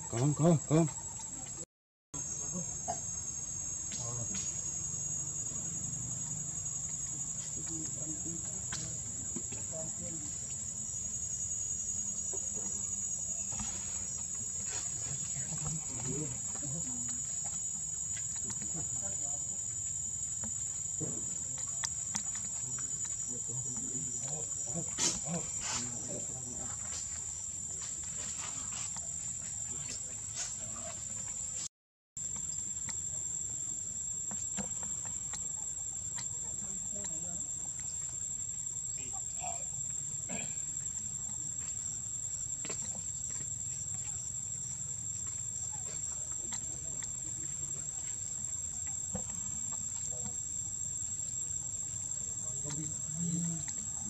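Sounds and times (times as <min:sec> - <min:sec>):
crickets high-pitched tone: 0:00.0 - 0:54.0
insects droning: 0:00.0 - 0:54.0
faint ticks: 0:15.2 - 0:26.7, 0:34.2 - 0:54.0.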